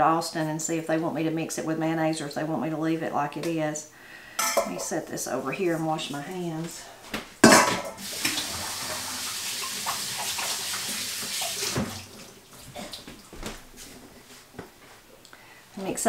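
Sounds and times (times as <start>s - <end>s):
metal bowl clattering: 4.4s - 5.0s, 7.4s - 8.2s
tap running: 7.8s - 12.2s.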